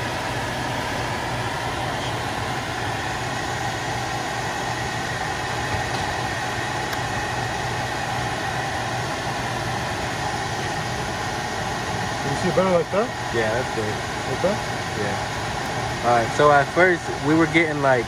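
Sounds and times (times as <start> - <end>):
blower fan and motor running: 0.0 - 18.0.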